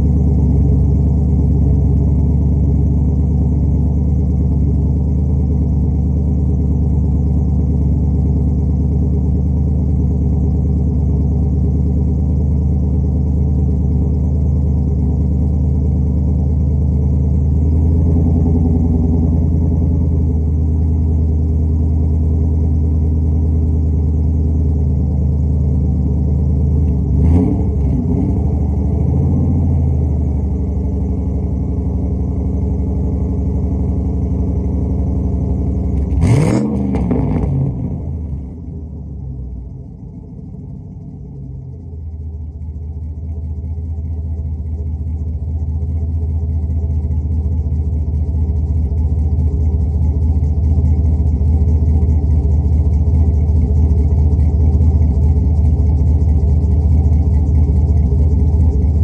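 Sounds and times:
car engine idling: 0.0 - 59.0.

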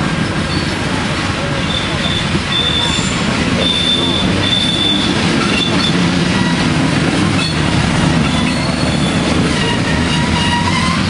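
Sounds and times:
freight train rumbling: 0.0 - 11.0
wheel squeal: 0.4 - 0.8, 1.4 - 11.0.

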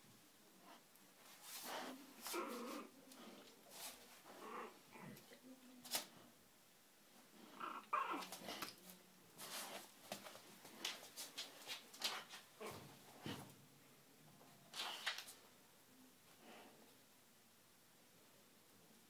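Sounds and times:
dogs growling and whimpering: 4.3 - 5.3, 7.5 - 8.4.

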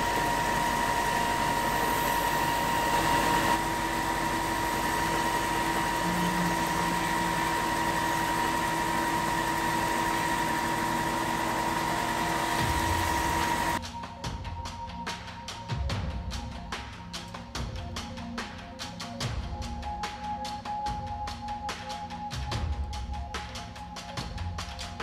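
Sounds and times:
belt sander whining: 0.0 - 13.8
low hum: 0.0 - 13.8.

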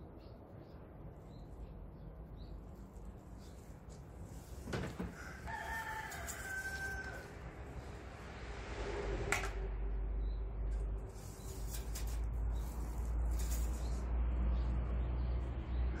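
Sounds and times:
rooster crowing: 5.1 - 7.6.

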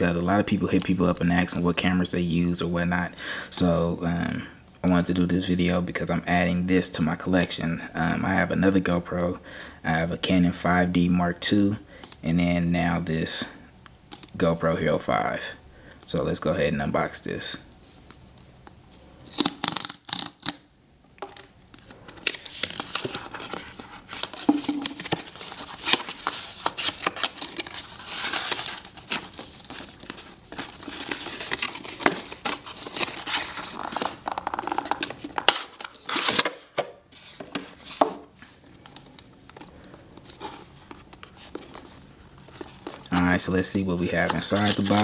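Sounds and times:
cardboard tearing: 19.2 - 20.6, 22.2 - 38.1, 44.2 - 45.0
box scraping and rustling: 22.2 - 36.5.

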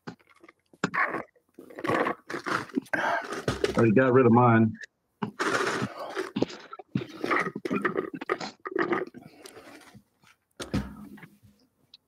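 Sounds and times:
person sipping and swallowing: 0.0 - 3.8, 5.2 - 10.0.

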